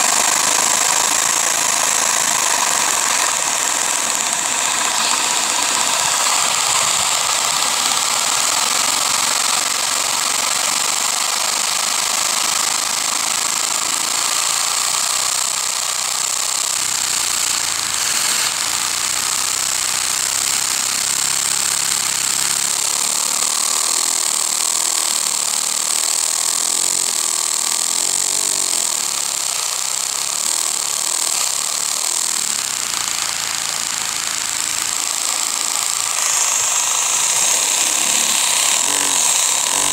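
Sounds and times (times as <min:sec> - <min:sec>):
air rushing through hose: 0:00.0 - 0:15.8, 0:33.1 - 0:39.9.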